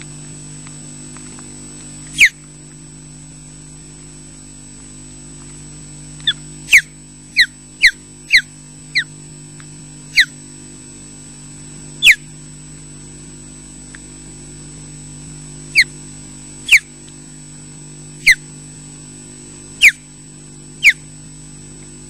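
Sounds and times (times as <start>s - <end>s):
steady electrical hum: 0.0s - 22.0s
osprey whistled calls: 2.2s - 2.4s, 6.2s - 9.1s, 10.1s - 10.4s, 12.0s - 12.2s, 16.7s - 16.9s, 18.2s - 18.4s, 19.8s - 20.0s, 20.8s - 21.0s.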